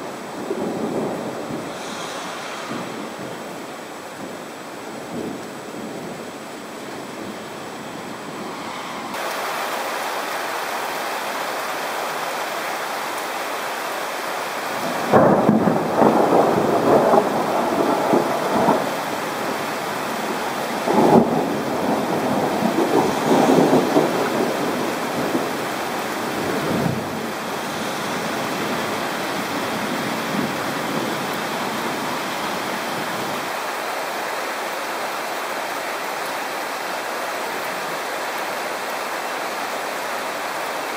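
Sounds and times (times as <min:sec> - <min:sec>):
steady rain: 0:00.0 - 0:40.9
thunder peals: 0:00.5 - 0:03.7, 0:14.7 - 0:31.3.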